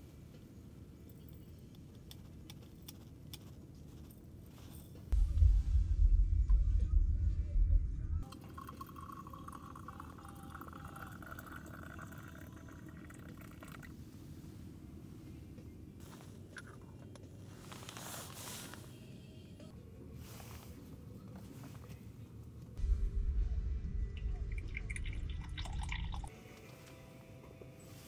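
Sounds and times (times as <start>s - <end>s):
loud low rumble: 5.1s - 8.3s, 22.8s - 26.3s
hot water poured into teapot: 8.3s - 13.9s, 24.5s - 26.3s.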